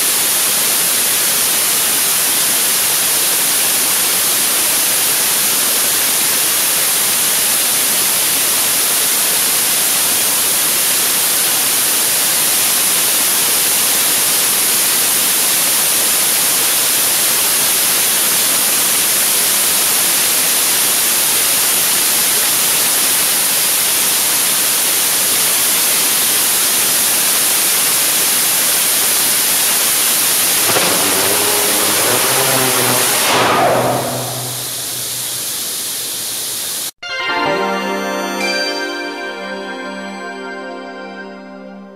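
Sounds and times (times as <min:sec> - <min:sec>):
rocket engine roaring: 0:30.2 - 0:36.5.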